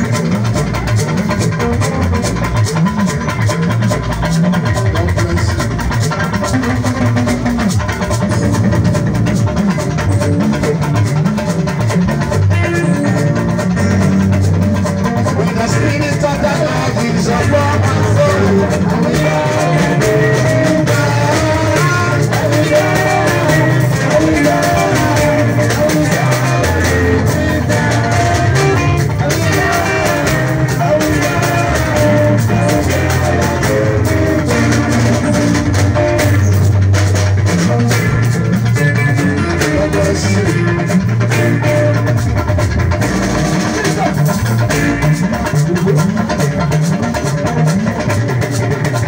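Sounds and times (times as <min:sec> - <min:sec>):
bass line: 0:00.0 - 0:49.0
drums: 0:00.0 - 0:49.0
electric guitar: 0:00.0 - 0:49.0.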